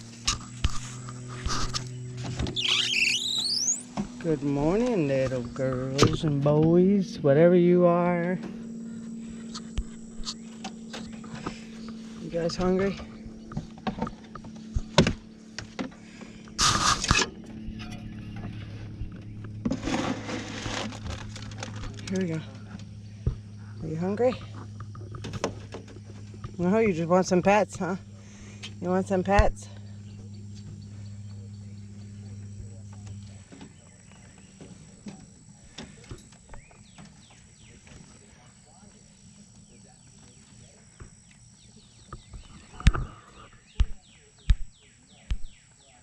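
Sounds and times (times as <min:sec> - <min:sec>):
faint low hum: 0:00.0 - 0:46.0
faint bird chirps: 0:02.0 - 0:04.0, 0:35.6 - 0:46.0.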